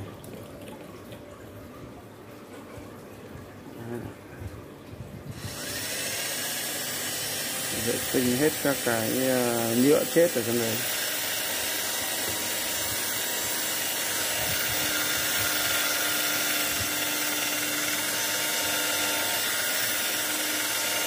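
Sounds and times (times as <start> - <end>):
cordless drill running: 5.3 - 21.0.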